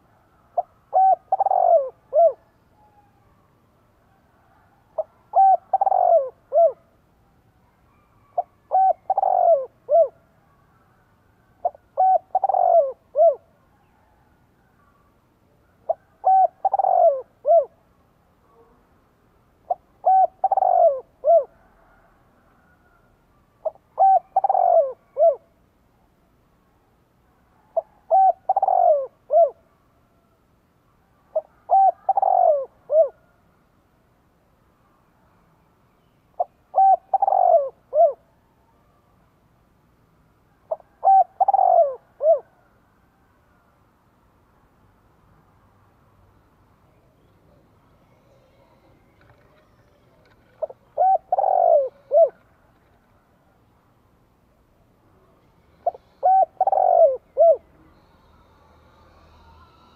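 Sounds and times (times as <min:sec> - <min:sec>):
dove cooing: 0:00.0 - 0:03.3, 0:04.4 - 0:06.9, 0:07.9 - 0:10.3, 0:11.6 - 0:14.2, 0:15.8 - 0:17.8, 0:19.6 - 0:23.0, 0:23.6 - 0:25.5, 0:27.6 - 0:29.6, 0:31.3 - 0:33.3, 0:36.4 - 0:38.3, 0:40.7 - 0:42.7, 0:47.2 - 0:53.0, 0:55.6 - 0:59.9.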